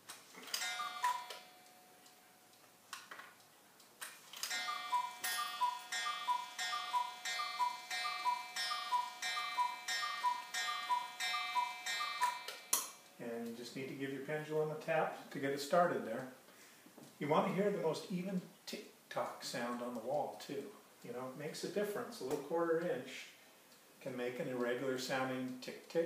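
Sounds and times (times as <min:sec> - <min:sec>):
clock ticking: 0:00.5 - 0:02.8, 0:03.4 - 0:13.6
cuckoo clock two-note call: 0:00.6 - 0:01.9, 0:04.5 - 0:12.7.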